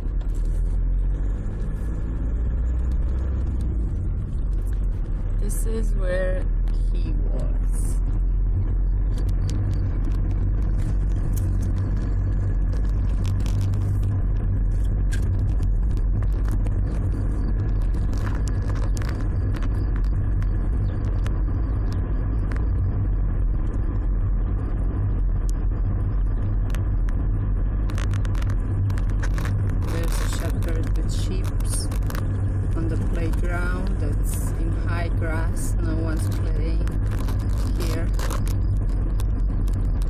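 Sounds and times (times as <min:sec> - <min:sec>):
car engine and tyres rumbling: 0:00.0 - 0:40.0
small clicks and rattles: 0:09.0 - 0:22.8, 0:27.8 - 0:40.0.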